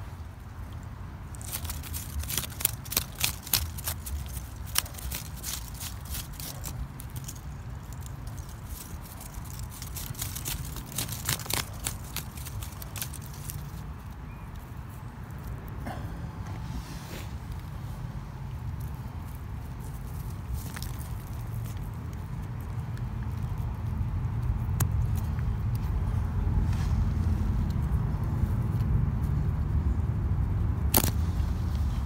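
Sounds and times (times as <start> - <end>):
rock chips clicking and scraping: 1.3 - 14.0.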